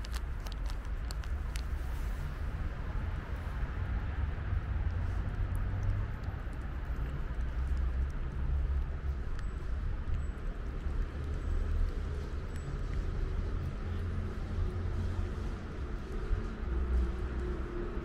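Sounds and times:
cat chewing wet food: 0.0 - 1.7, 4.2 - 14.6
street background: 0.0 - 18.0
wind rumble: 0.0 - 18.0.

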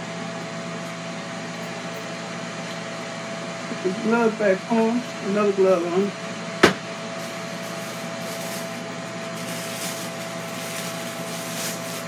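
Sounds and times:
plastic glove rustling: 7.2 - 12.0.

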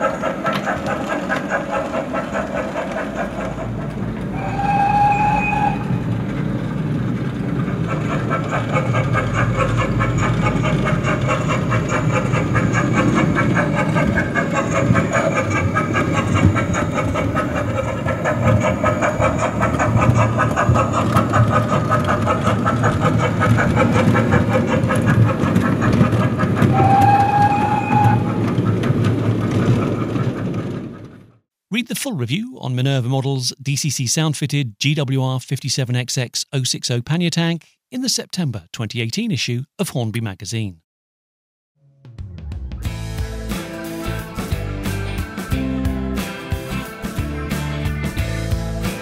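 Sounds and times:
steam locomotive running sounds: 0.0 - 31.4, 42.8 - 49.0
wheels rolling on track: 0.0 - 31.4
steam whistle: 4.3 - 6.1, 26.6 - 28.5.

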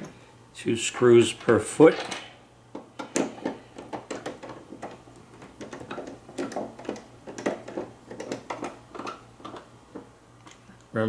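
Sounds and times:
metal screws clicking and tapping: 2.0 - 9.6.

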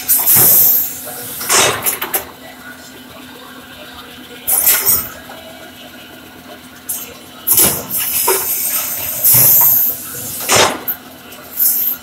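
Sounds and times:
machine hissing bursts: 0.1 - 1.8, 7.5 - 10.9.

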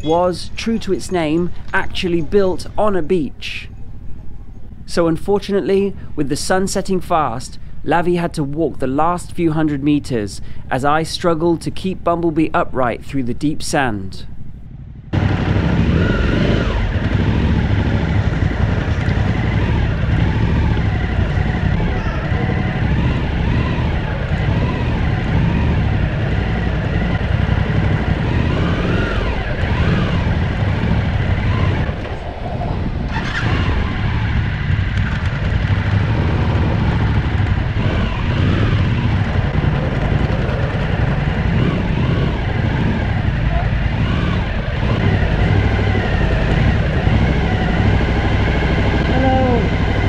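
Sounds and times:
motorcycle engine revving: 14.7 - 50.0.

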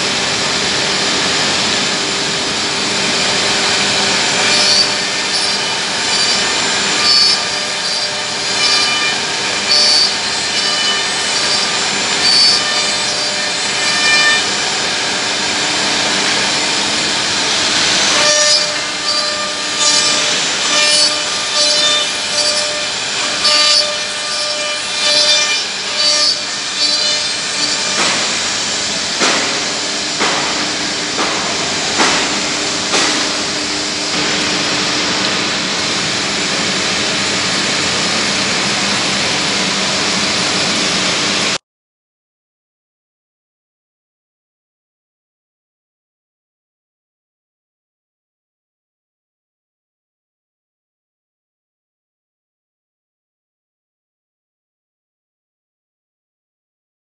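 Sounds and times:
router spindles whining: 0.0 - 31.9.

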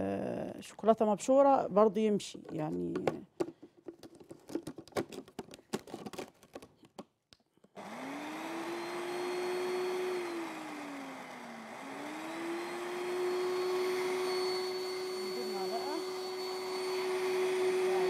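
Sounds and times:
electric blender motor whining: 7.8 - 18.0.

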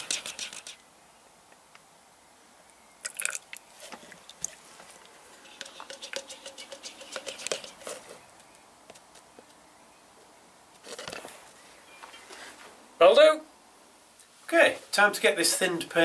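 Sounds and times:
stirring rod tapping mixing cup: 5.5 - 7.8.

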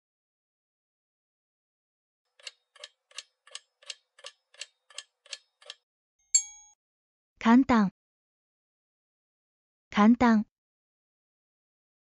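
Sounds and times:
clock ticking: 2.4 - 5.8.

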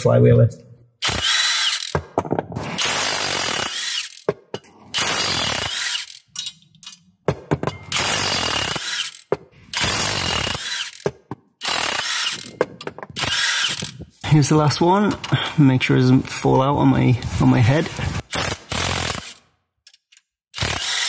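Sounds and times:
impact wrench hammering: 1.0 - 6.6, 7.2 - 14.2
small clicks: 19.8 - 20.4.

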